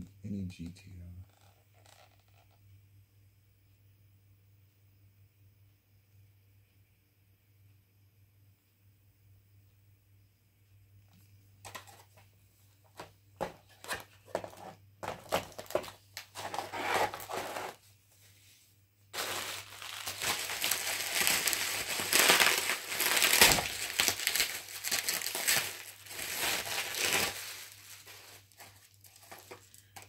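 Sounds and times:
bubble wrap crinkling: 1.3s - 2.6s, 13.4s - 17.8s, 19.1s - 30.0s.

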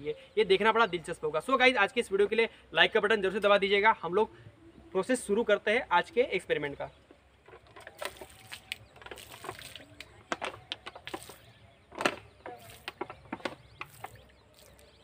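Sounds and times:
liquid pouring and splashing into water: 7.9s - 10.1s, 13.8s - 15.0s.

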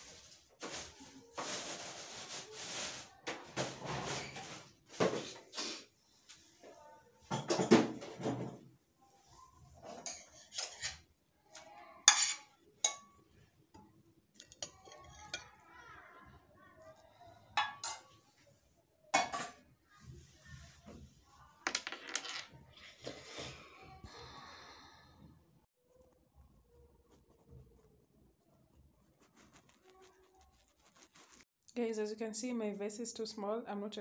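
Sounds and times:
dishes and cutlery clinking: 7.2s - 8.6s, 9.7s - 15.7s, 17.6s - 18.3s, 19.1s - 19.7s.

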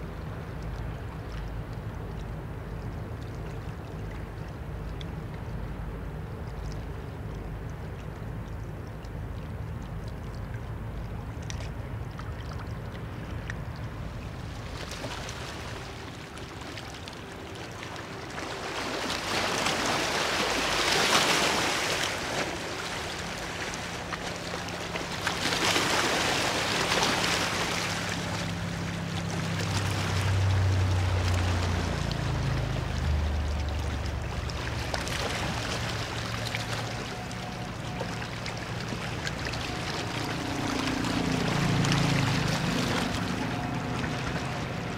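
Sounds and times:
low engine hum: 0.0s - 44.9s
water rushing: 0.0s - 44.9s
traffic rush: 40.0s - 44.9s.

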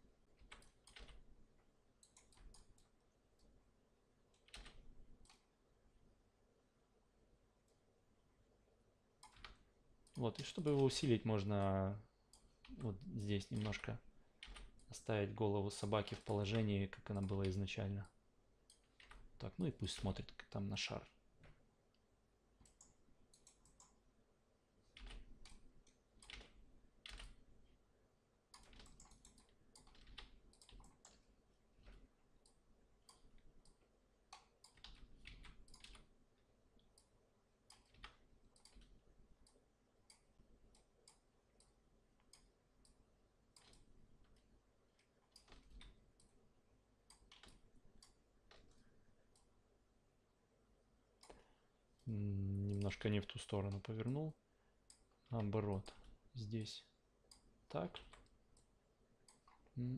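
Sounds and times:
computer mouse and keyboard clicks: 0.4s - 1.2s, 2.0s - 3.5s, 22.6s - 24.0s, 24.9s - 27.4s, 28.5s - 36.1s, 37.7s - 46.4s, 47.0s - 49.5s, 57.3s - 59.7s.

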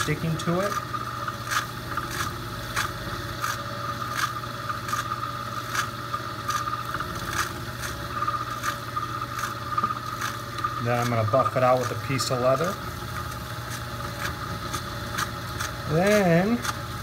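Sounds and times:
rubbing scrape on spinning tip: 0.0s - 12.8s
metal lathe running: 0.0s - 17.0s.

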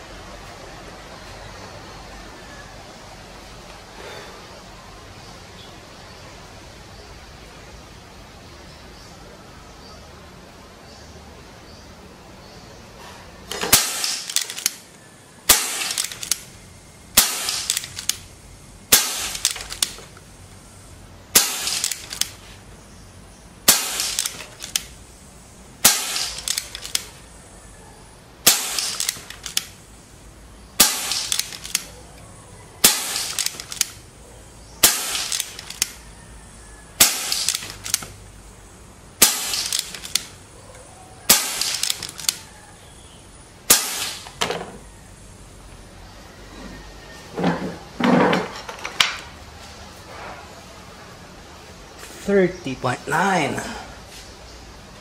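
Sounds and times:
air rifle shots: 13.5s - 16.5s, 17.1s - 18.3s, 18.9s - 20.1s, 21.3s - 22.4s, 23.6s - 25.0s, 25.8s - 27.2s, 28.4s - 29.8s, 30.8s - 31.9s, 32.8s - 34.0s, 34.8s - 36.0s, 37.0s - 38.2s, 39.2s - 40.4s, 41.3s - 42.5s, 43.6s - 44.6s.

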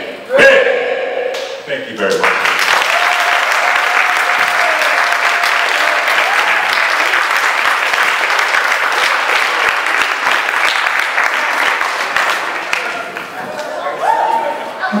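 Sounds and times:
audience applauding: 2.1s - 14.0s.

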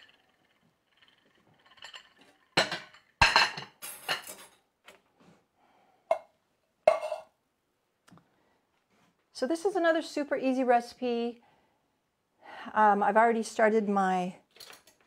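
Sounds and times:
ceramic plates clinking: 0.0s - 4.5s, 6.9s - 7.3s.

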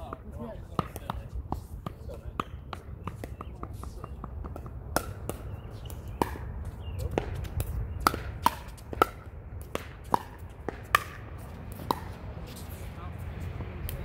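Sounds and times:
ball bouncing on hard court: 0.0s - 12.2s.

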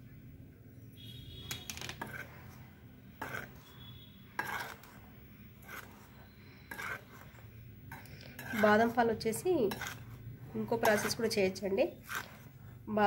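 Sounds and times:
spoon scraping powder in a bowl: 1.5s - 13.0s.

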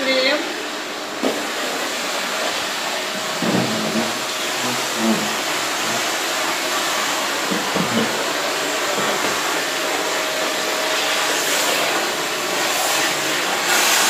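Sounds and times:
vacuum cleaner running: 0.0s - 14.0s.

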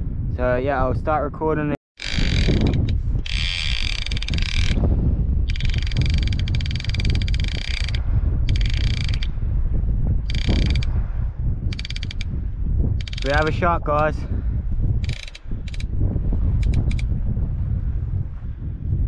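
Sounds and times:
fishing reel ratchet buzzing: 2.0s - 4.8s, 5.5s - 9.3s, 10.3s - 10.9s, 11.7s - 12.3s, 13.0s - 13.5s, 15.0s - 15.9s, 16.6s - 17.0s.

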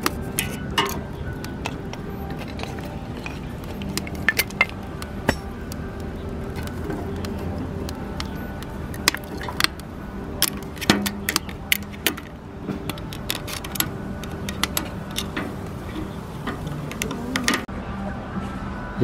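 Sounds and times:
metal tongs clinking on stove: 0.3s - 5.6s, 10.4s - 17.6s.

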